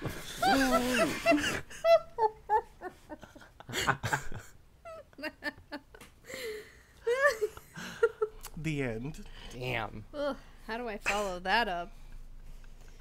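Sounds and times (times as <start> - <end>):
people laughing: 0.3 - 5.8.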